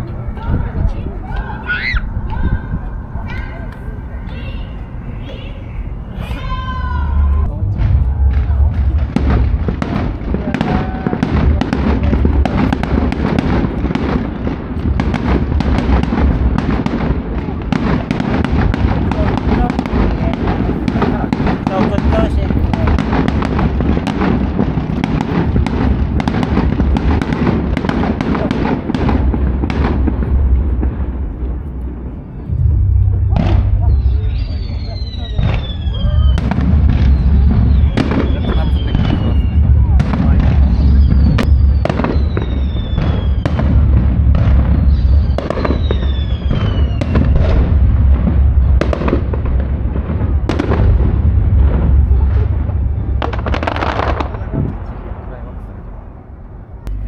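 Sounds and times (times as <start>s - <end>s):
deep rumble: 0.0s - 57.0s
fireworks bangs and crackles: 5.6s - 57.0s
falling firework whistles: 32.5s - 47.7s.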